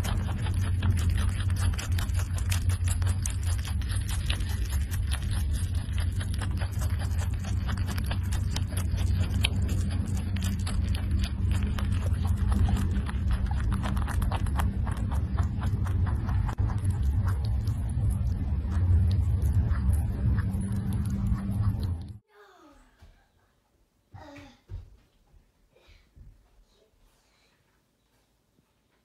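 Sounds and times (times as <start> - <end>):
rabbit chewing greens: 0.0 - 22.2
steady low hum: 0.0 - 22.2.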